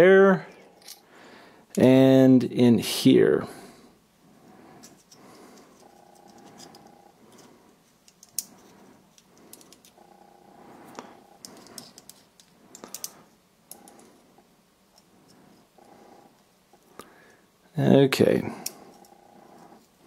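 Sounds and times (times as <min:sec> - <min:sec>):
faint low hum: 0:00.0 - 0:20.0
small metal parts clicking: 0:00.8 - 0:01.0, 0:04.8 - 0:10.0, 0:10.9 - 0:14.1.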